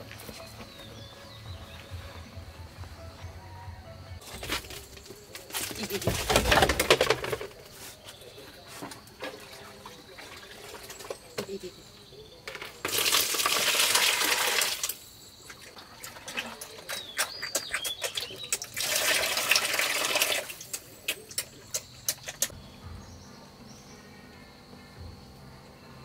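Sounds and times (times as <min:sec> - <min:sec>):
pigs eating with wet smacking: 0:09.0 - 0:11.6, 0:12.9 - 0:22.5
liquid splashing into basin: 0:12.8 - 0:22.5.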